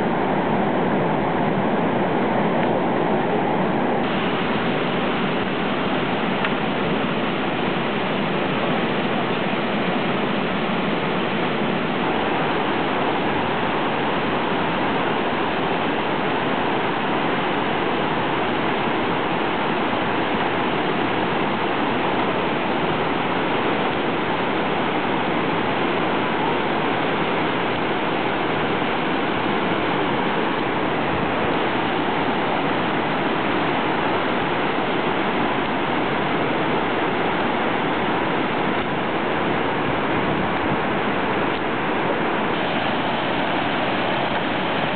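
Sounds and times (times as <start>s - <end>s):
water rushing over boulders: 0.0s - 44.9s.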